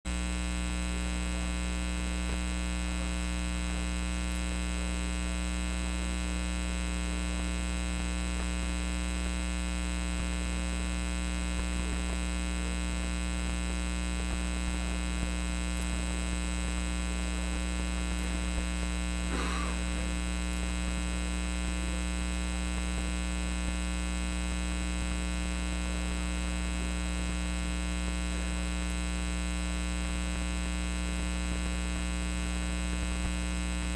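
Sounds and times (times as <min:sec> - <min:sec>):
electrical mains hum: 0:00.1 - 0:33.9.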